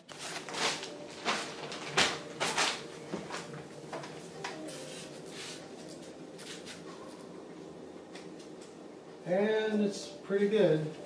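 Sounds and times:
ceiling tile crinkling: 0.0 - 7.2.

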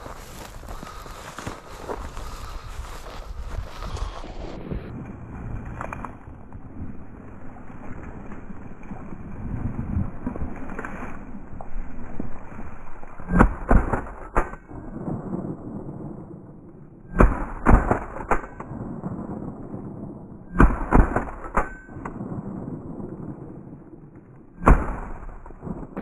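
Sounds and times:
shotgun shots: 13.3 - 15.4, 17.1 - 19.3, 20.5 - 22.3, 24.6 - 26.0.

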